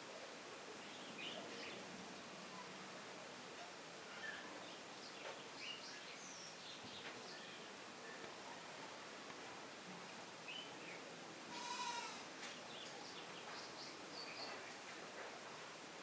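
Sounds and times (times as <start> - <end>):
goat bleating: 11.5 - 12.2.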